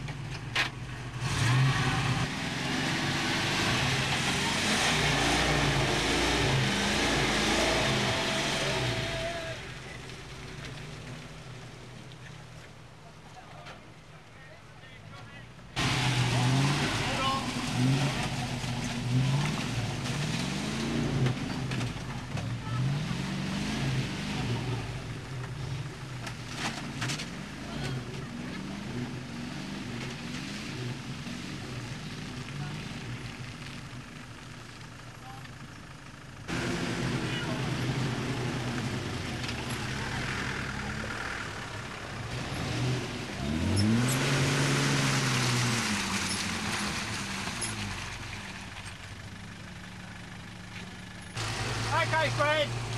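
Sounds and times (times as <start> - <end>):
engine revving under load: 0.7 - 10.5, 15.8 - 33.4, 36.5 - 48.8, 51.0 - 52.9.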